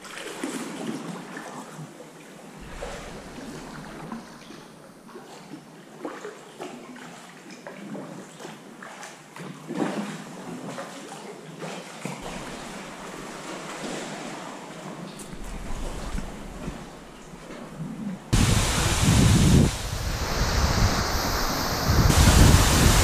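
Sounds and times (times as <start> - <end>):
sea water sloshing and lapping: 0.0 - 23.0.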